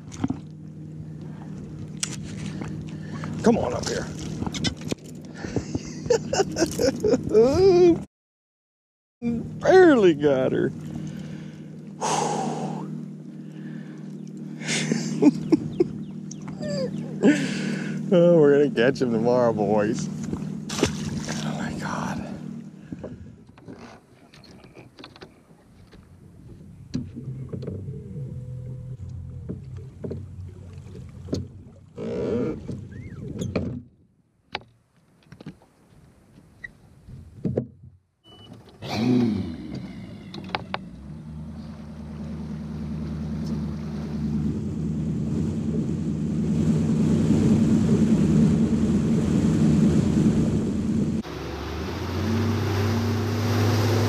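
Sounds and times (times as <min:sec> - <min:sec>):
wind and water rushing: 0:00.0 - 0:08.0, 0:09.3 - 0:24.8, 0:39.6 - 0:54.0
outboard motor humming: 0:00.0 - 0:08.1, 0:09.2 - 0:34.6, 0:37.3 - 0:54.0.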